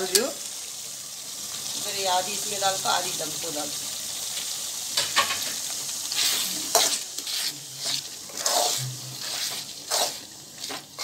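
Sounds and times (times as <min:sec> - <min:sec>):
food sizzling: 0:00.0 - 0:11.0
metal spoon scraping a pot: 0:06.1 - 0:11.0.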